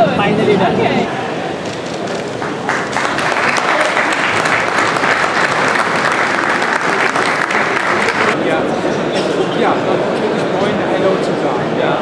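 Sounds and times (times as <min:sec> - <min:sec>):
crowd applauding: 0:01.6 - 0:08.4.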